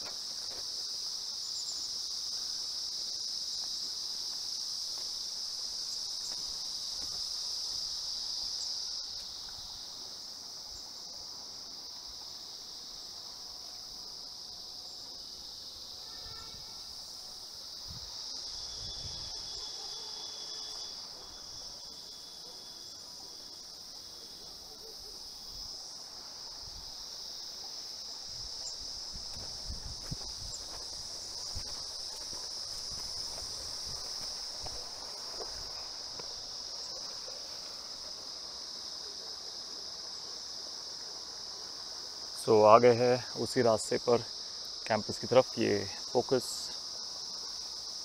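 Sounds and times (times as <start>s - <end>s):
faint footsteps on path: 0.0s - 10.6s, 25.8s - 38.8s
insect chorus shrilling: 0.0s - 48.0s
lower insect note: 12.1s - 24.2s.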